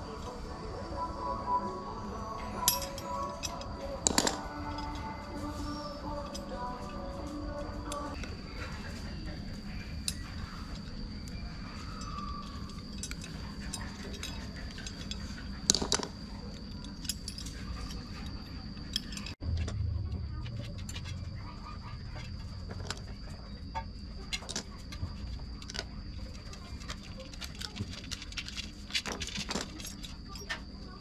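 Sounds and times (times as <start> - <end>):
small chain jangling: 2.5 - 8.2.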